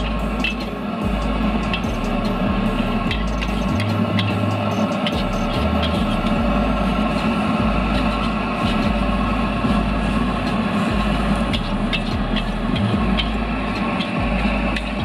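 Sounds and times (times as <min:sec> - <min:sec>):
gas burner roaring: 0:00.0 - 0:15.0
metal spatula scraping wok: 0:01.5 - 0:15.0.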